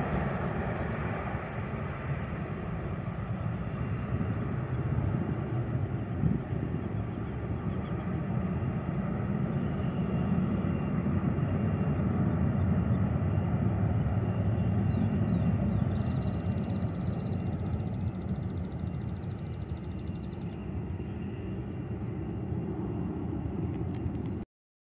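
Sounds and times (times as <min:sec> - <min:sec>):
jet engines rumbling: 0:00.0 - 0:24.4
high steady whistling tone: 0:12.7 - 0:22.0.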